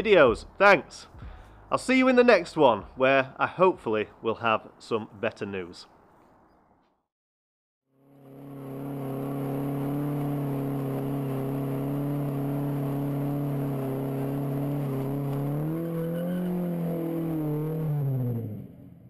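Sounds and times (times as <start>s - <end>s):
car engine revving: 8.0s - 19.0s
wheels spinning: 8.2s - 18.6s.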